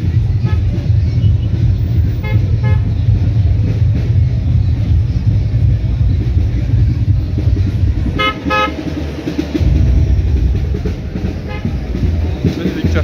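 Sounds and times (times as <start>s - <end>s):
street traffic rumbling: 0.0s - 13.0s
vehicle horn toots: 0.4s - 1.6s, 2.2s - 2.9s, 8.1s - 8.8s, 11.4s - 11.8s.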